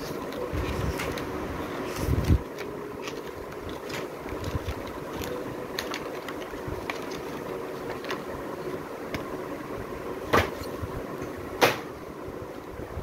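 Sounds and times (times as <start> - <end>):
pages of cardboard book turning: 0.0 - 9.2
steady background hum: 0.0 - 13.0.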